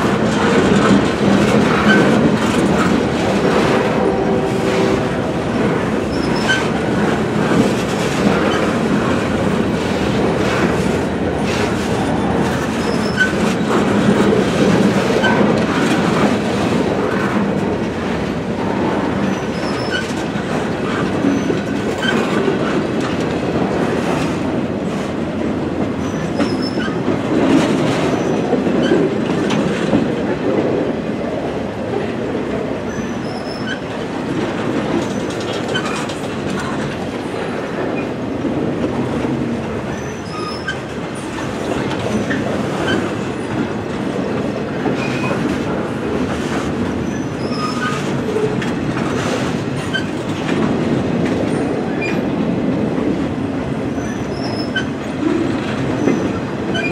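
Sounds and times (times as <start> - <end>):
train wheels clattering on rails: 0.0 - 56.9
wheel squeals: 12.8 - 13.4.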